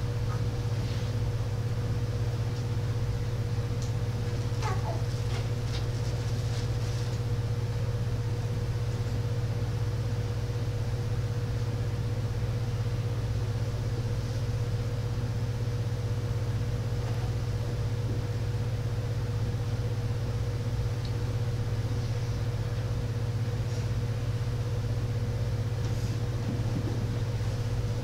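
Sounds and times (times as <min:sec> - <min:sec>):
low hum: 0:06.2 - 0:28.0.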